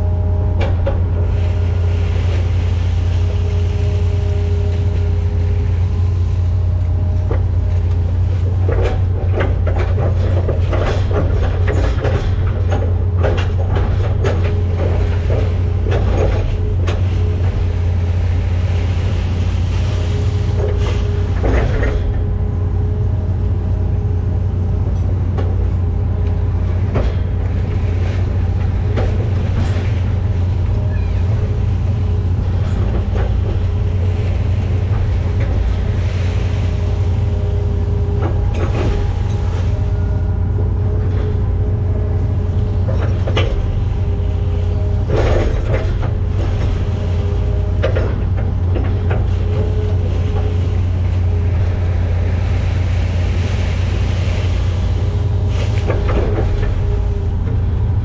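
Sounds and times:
excavator engine and hydraulics: 0.0 - 58.0
knocks and clanks: 0.5 - 1.2, 7.2 - 18.0, 20.3 - 22.5, 24.9 - 53.1, 53.9 - 58.0.

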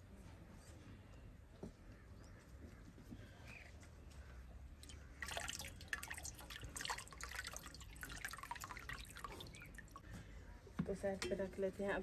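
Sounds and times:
water dripping into metal bowl: 4.8 - 10.0.

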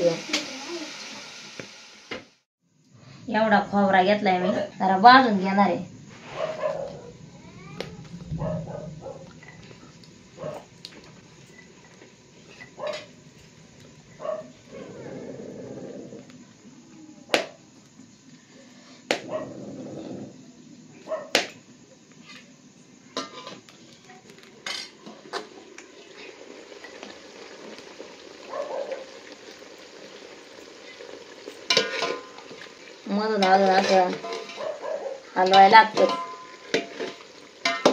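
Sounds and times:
wood fire cracks and knocks: 35.8 - 37.9.

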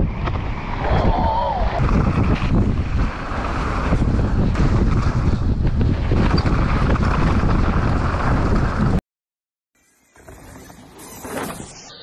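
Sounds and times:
bike tyre rumble on dirt: 0.0 - 9.0
wind buffeting microphone: 0.0 - 9.0.

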